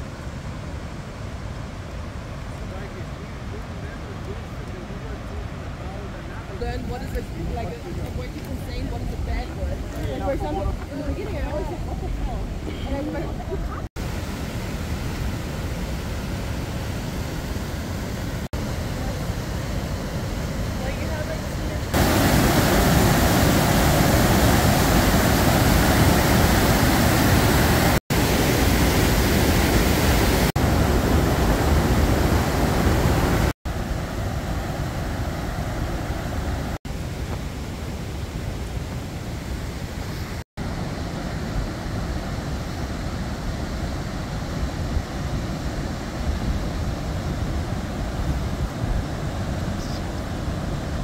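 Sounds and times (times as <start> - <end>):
stream rushing over boulders: 0.0 - 51.0.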